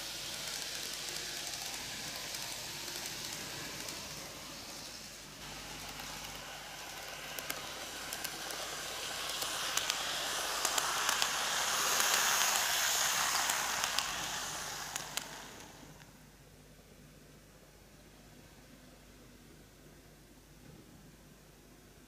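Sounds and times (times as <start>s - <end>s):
model train whirring on rails: 0.0s - 16.3s.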